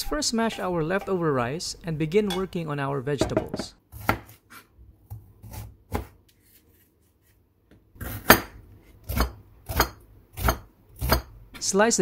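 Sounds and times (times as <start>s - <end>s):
knife slicing vegetable: 3.9s - 6.6s.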